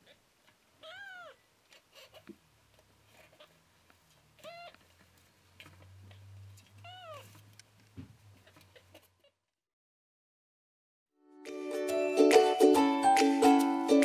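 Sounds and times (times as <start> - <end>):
kitten mewing: 0.8 - 1.4, 4.4 - 4.8, 6.1 - 7.4.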